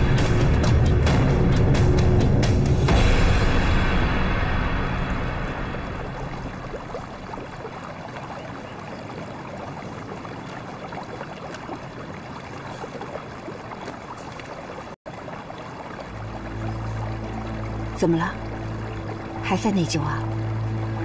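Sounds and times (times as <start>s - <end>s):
river water babbling over stones: 4.3s - 21.0s.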